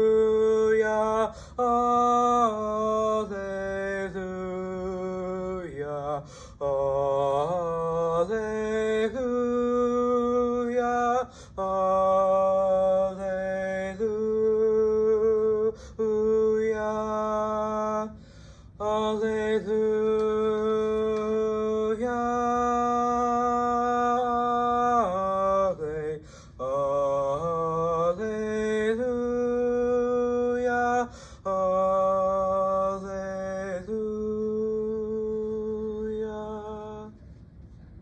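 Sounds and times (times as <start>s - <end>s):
man singing a cappella: 0.0s - 37.2s
man breathing: 1.3s - 1.6s, 6.2s - 6.6s, 11.3s - 11.6s, 15.8s - 16.0s, 18.1s - 18.8s, 26.2s - 26.6s, 31.1s - 31.4s.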